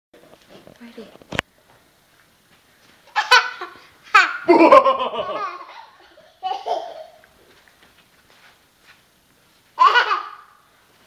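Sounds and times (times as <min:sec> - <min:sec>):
toddler girl giggling: 0:03.1 - 0:07.2, 0:09.8 - 0:10.5.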